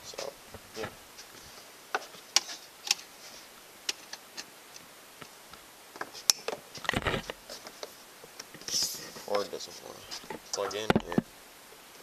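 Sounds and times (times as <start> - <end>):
knocks and rustling: 6.0 - 11.3.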